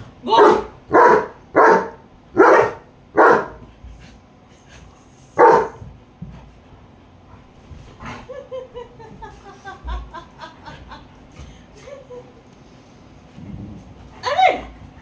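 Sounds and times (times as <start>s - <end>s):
dog barking: 0.3s - 3.6s, 5.4s - 5.8s.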